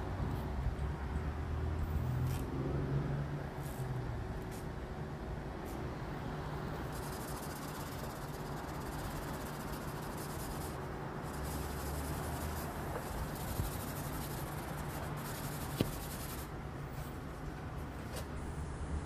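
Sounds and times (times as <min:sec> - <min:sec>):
hand sanding with sanding block: 0:06.9 - 0:16.5.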